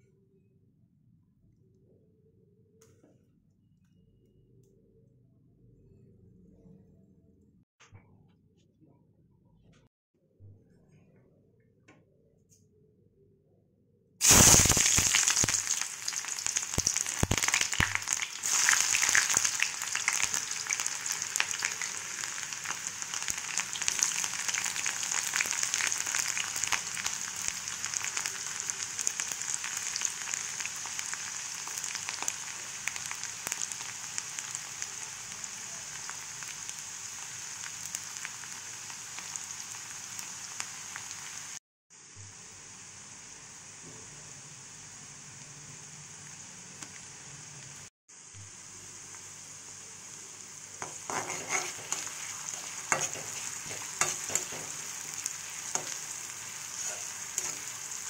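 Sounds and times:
onions sizzling in hot oil: 14.2s - 43.8s, 44.4s - 58.0s.

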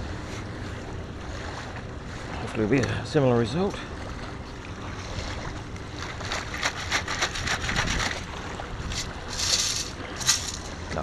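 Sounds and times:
water splashing and sloshing: 0.0s - 11.0s
sand grit rattling against metal: 6.2s - 8.3s, 8.9s - 10.8s.

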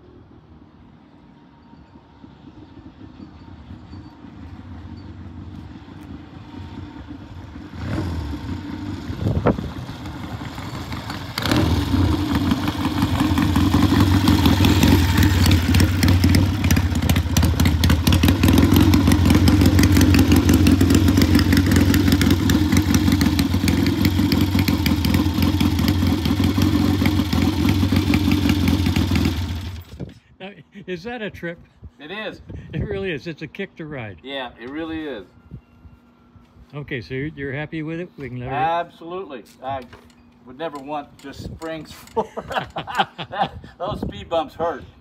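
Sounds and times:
motorcycle engine running: 2.4s - 30.0s.

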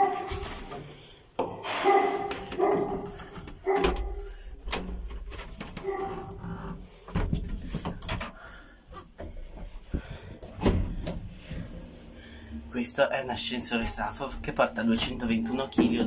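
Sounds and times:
door hinges creaking: 1.6s - 8.6s.

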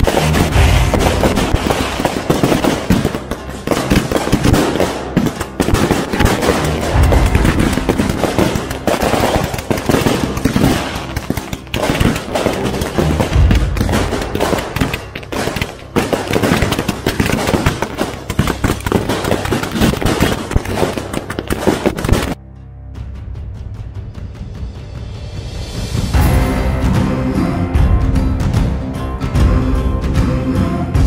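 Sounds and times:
heavy low firework booms: 0.0s - 11.1s
fireworks bangs and crackling: 0.0s - 22.4s.

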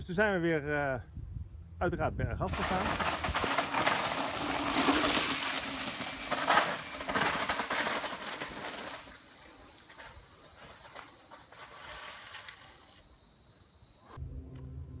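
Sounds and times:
bike tyres crunching on dirt: 2.5s - 13.4s.

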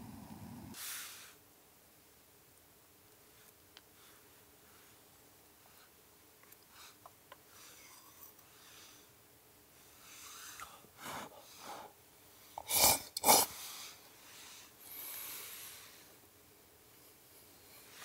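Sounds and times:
soft hiss: 0.0s - 18.0s
loud sharp breath bursts: 0.8s - 1.4s.

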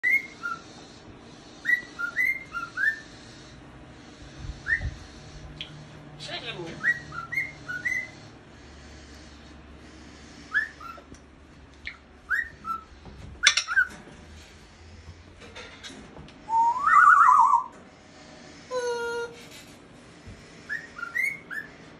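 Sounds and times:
cockatiel whistling: 0.0s - 0.7s, 1.6s - 3.1s, 4.6s - 5.0s, 6.8s - 8.2s, 10.5s - 11.1s, 11.8s - 13.9s, 16.5s - 17.7s, 20.7s - 21.8s.

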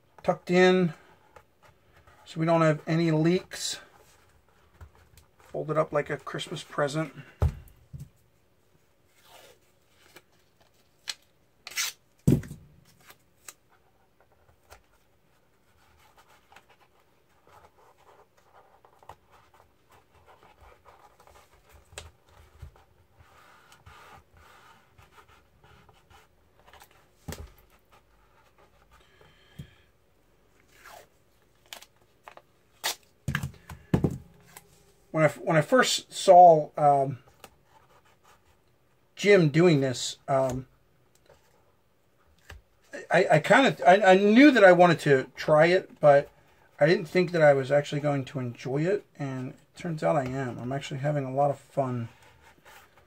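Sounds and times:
tape ripping: 11.0s - 13.6s, 32.7s - 33.6s.

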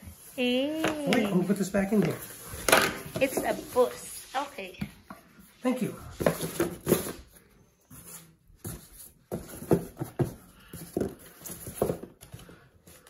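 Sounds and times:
cardboard and foam rubbing squeaking: 3.2s - 4.8s.

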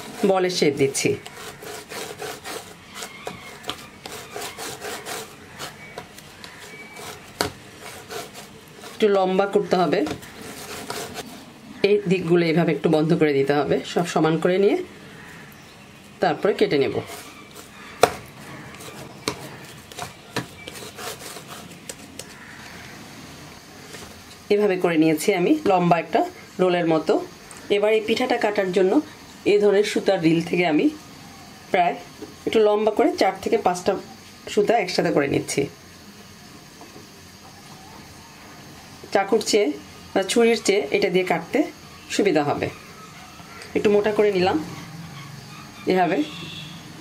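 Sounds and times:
hand rubbing dough: 0.0s - 11.5s, 16.4s - 22.6s
hands patting dough on wood: 5.9s - 7.6s
dough knocking on wooden board: 7.4s - 7.6s, 18.0s - 18.3s.

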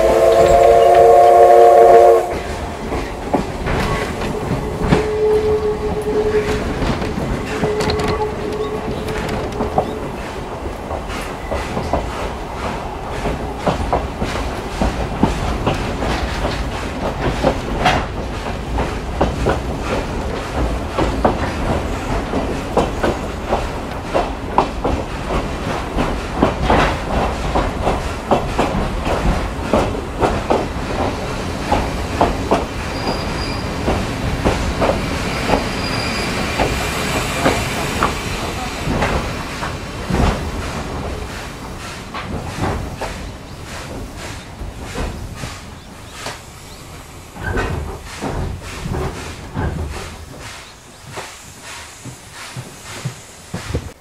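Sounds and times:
train coach rumble: 0.0s - 54.0s
high squeals: 3.9s - 6.8s, 35.3s - 36.5s.

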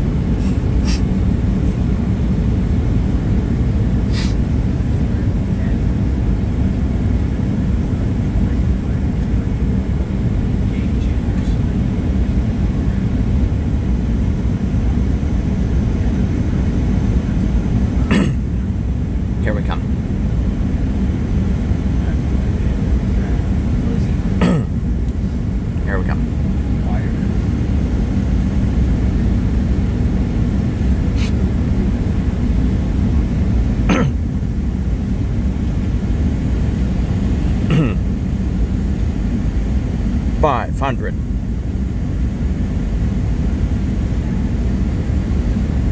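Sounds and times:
rushing air: 0.0s - 1.9s
jet engines roaring: 0.0s - 45.9s.

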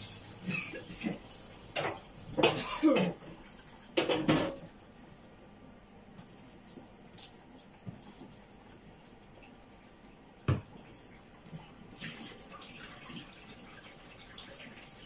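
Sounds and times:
dishes clattering in sink: 0.0s - 4.8s.

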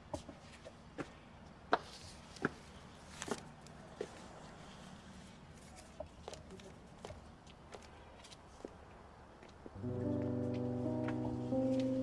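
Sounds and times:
footsteps of hard-soled shoes: 6.2s - 12.0s.

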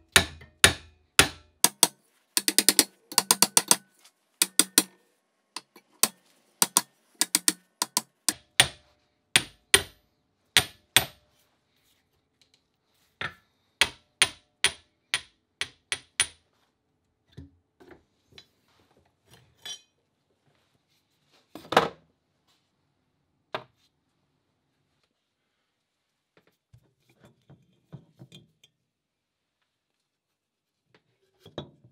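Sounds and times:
hammer tapping steel: 0.1s - 5.0s, 5.6s - 8.8s, 9.4s - 10.0s, 10.6s - 11.2s, 13.8s - 16.4s.

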